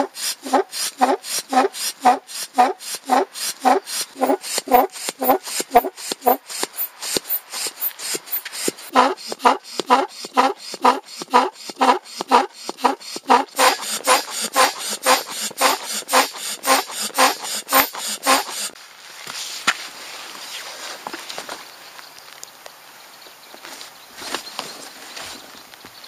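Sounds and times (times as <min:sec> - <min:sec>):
foot pump squeaky puffs: 0:00.0 - 0:18.8.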